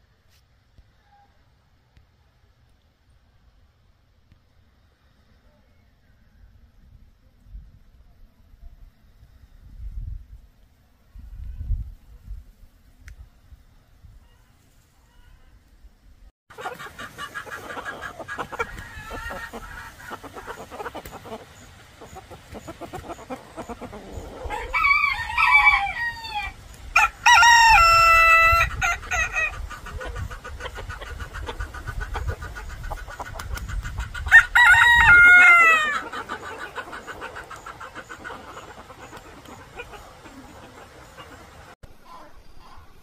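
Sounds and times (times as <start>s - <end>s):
chickens clucking: 16.5s - 25.0s, 27.8s - 43.0s
rooster crowing: 24.1s - 29.6s, 34.3s - 36.4s.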